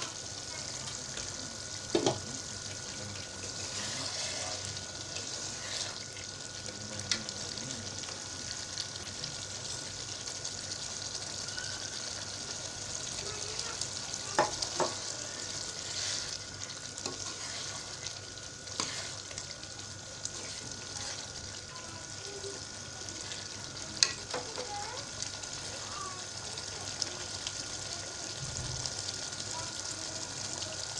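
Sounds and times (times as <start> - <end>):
curry sizzling in a wok: 0.0 - 30.9
spoon knocking against pan: 1.9 - 2.2, 14.4 - 15.1.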